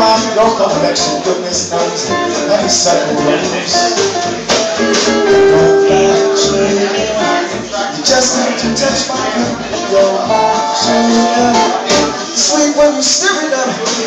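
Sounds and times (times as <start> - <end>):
acoustic string band playing: 0.0 - 13.2
sharp percussion hits: 4.0 - 7.5.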